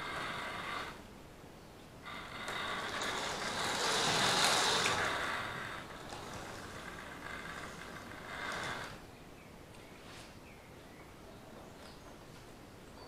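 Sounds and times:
model train whirring rumble: 0.0s - 1.0s, 2.0s - 9.0s.

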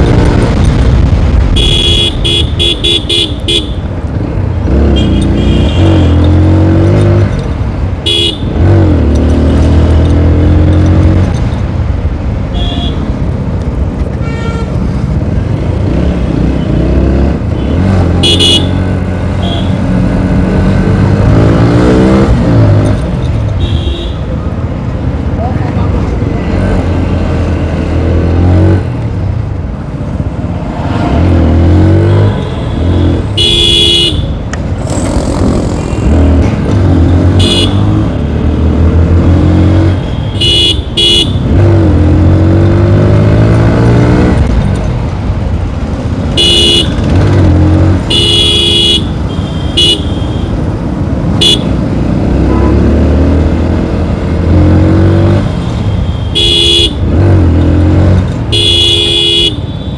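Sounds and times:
vehicle horn honks: 4.9s - 6.2s, 18.2s - 18.8s, 33.4s - 34.3s, 37.4s - 37.9s, 40.2s - 41.4s, 46.4s - 47.0s, 48.1s - 50.5s, 51.4s - 51.7s, 55.8s - 57.0s, 58.5s - 59.9s
motorcycle engine accelerating: 34.8s - 40.0s.

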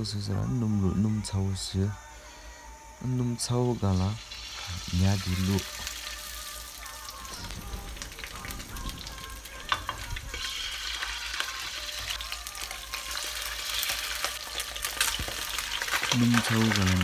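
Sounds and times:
fish fillets sizzling in oil: 4.0s - 17.0s.

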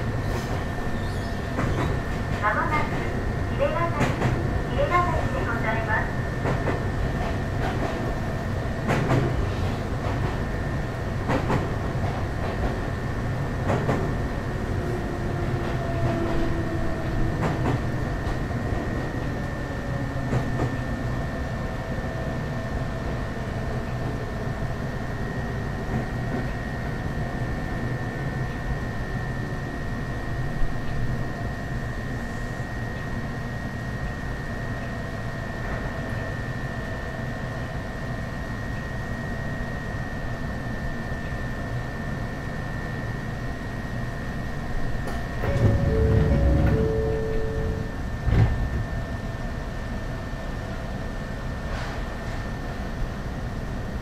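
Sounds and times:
train wheels rumbling on rail: 0.0s - 54.0s
rail-joint clicks: 0.4s - 3.0s, 3.9s - 4.4s, 8.8s - 10.4s, 11.2s - 12.8s, 13.6s - 14.2s, 15.5s - 18.4s, 20.2s - 20.8s, 45.0s - 48.6s
high whine: 45.4s - 48.8s.

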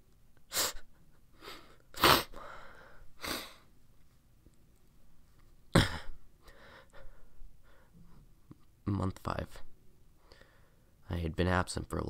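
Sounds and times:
sharp breaths or sniffs: 0.5s - 3.7s.

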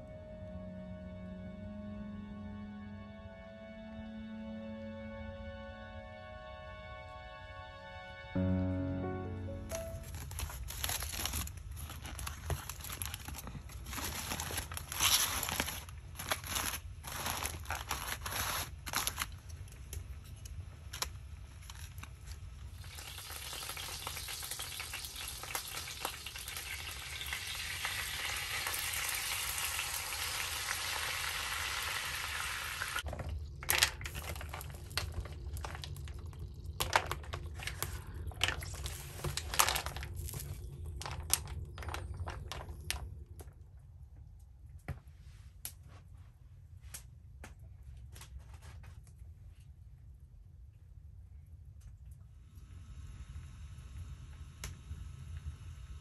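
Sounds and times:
handling clicks and crinkling: 9.7s - 22.5s, 33.0s - 43.5s
food sizzling in a pan: 22.8s - 33.1s.

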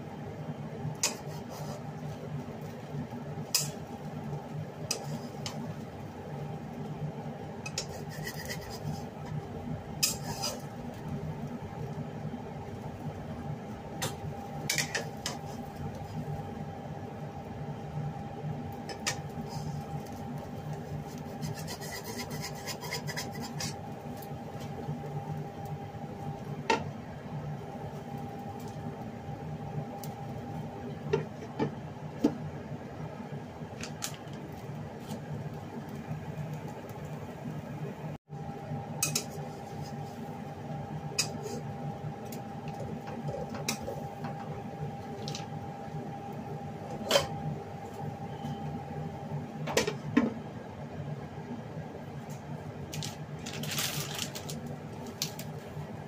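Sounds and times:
steady low hum: 0.0s - 56.0s
spatula scraping a pan: 1.0s - 1.9s, 4.9s - 5.6s, 7.6s - 9.2s, 10.0s - 10.7s, 20.8s - 23.9s.

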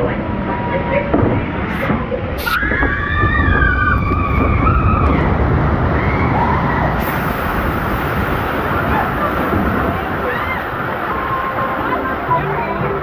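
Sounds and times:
wind on microphone: 1.1s - 13.0s
rushing spraying water: 1.6s - 13.0s
riders screaming: 2.4s - 12.5s.

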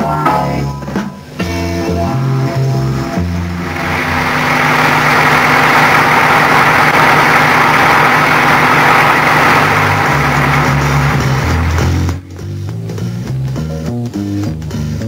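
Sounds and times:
low steady notes: 1.7s - 14.1s
heavy vehicle engines running: 3.2s - 12.2s.

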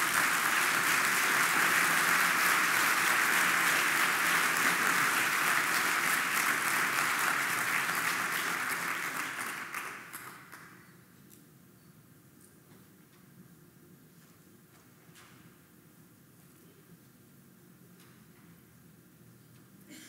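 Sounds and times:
audience applauding: 0.0s - 10.8s.

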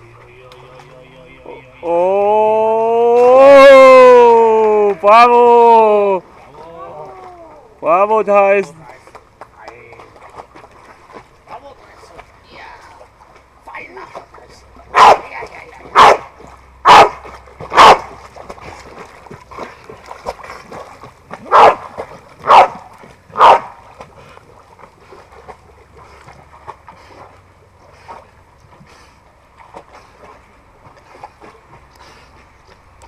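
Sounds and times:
dog swimming splashing: 8.7s - 33.0s
dog barking: 14.9s - 15.2s, 16.0s - 16.2s, 16.9s - 18.0s, 21.5s - 21.8s, 22.4s - 22.8s, 23.4s - 23.7s.

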